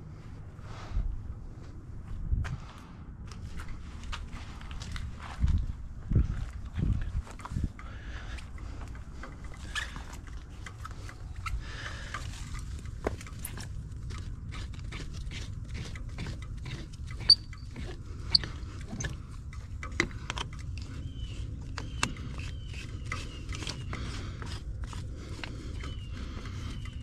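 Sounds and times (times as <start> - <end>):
metal hose fittings clicking: 7.3 - 27.0
bird chirping: 20.5 - 24.3, 25.5 - 27.0.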